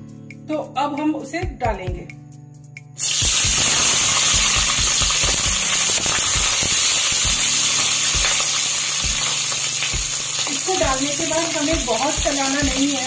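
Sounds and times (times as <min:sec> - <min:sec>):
onions sizzling in hot oil: 0:03.0 - 0:13.0.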